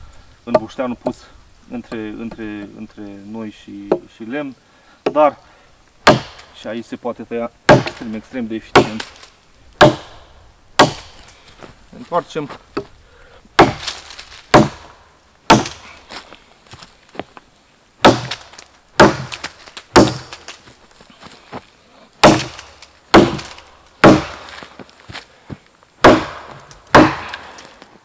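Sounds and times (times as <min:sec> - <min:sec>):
axe chopping into log: 0:06.0 - 0:06.5, 0:07.7 - 0:08.1, 0:08.8 - 0:09.2, 0:09.8 - 0:10.2, 0:10.8 - 0:11.2, 0:13.6 - 0:14.9, 0:15.5 - 0:15.9, 0:18.0 - 0:20.6, 0:22.2 - 0:24.6, 0:26.0 - 0:27.7.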